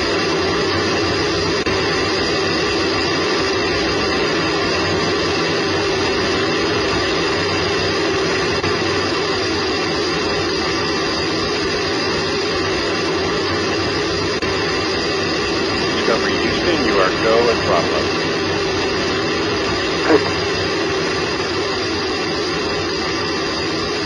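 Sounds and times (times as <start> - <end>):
faint steady tones: 11.0 - 24.0
rocket booster roaring: 12.4 - 23.8.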